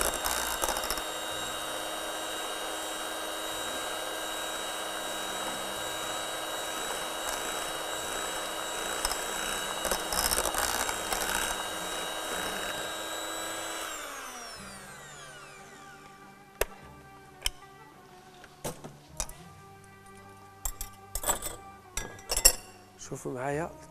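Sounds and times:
electric hand mixer whining: 0.0 - 17.7.

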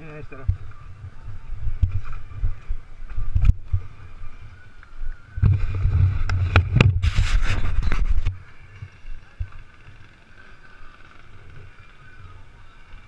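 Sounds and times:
wind buffeting microphone: 0.0 - 10.1.

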